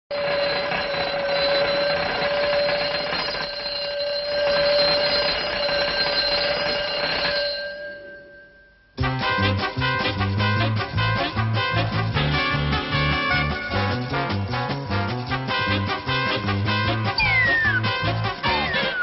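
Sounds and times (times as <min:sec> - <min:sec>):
alarm bell ringing: 0:00.1 - 0:09.0, 0:17.0 - 0:19.0.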